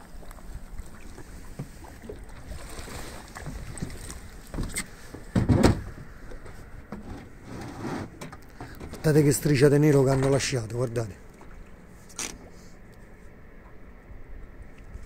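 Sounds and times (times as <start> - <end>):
water slapping against boat hull: 0.0 - 7.0.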